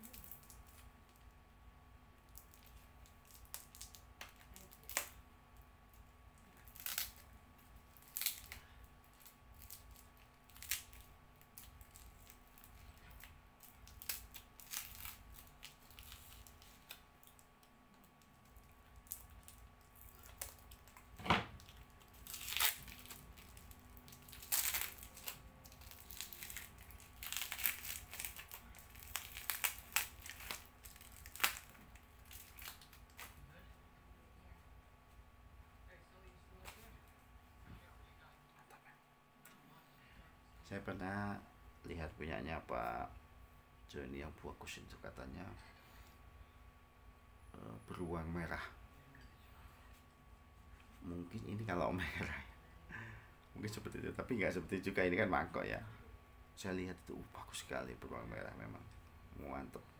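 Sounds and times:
packing material crinkling: 0:00.0 - 0:01.3, 0:02.3 - 0:05.2, 0:06.4 - 0:33.4.

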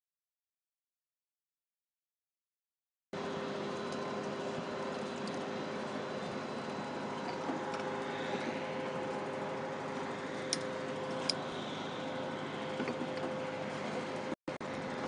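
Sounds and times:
machine hum: 0:03.2 - 0:15.0.

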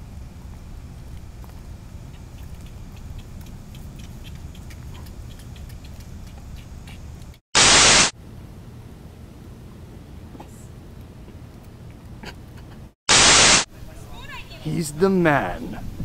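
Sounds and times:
outdoor background rumble: 0:00.0 - 0:07.4, 0:08.1 - 0:13.0
faint ticks: 0:00.4 - 0:07.4
burst of tv static: 0:07.6 - 0:08.1, 0:13.1 - 0:13.7.

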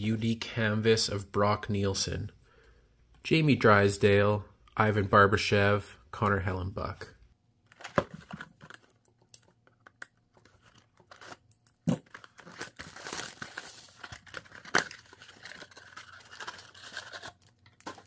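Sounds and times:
plastic shrink wrap crinkling and tearing: 0:08.6 - 0:18.0.

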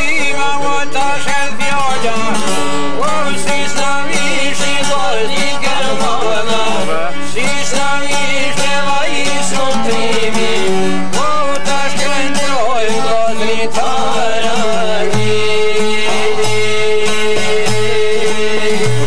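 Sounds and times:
man singing: 0:00.0 - 0:19.0
plucked lutes playing folk music: 0:00.0 - 0:19.0.

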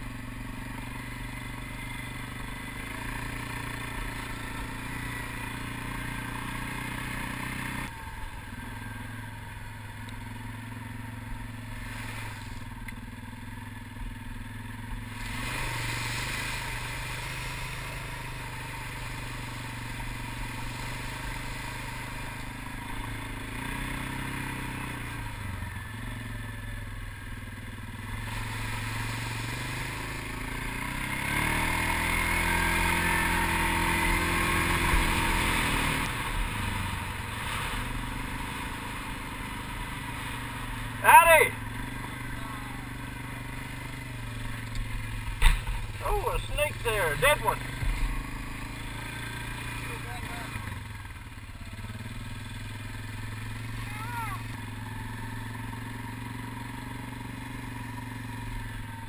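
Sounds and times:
atv engine revving: 0:00.0 - 0:59.0.

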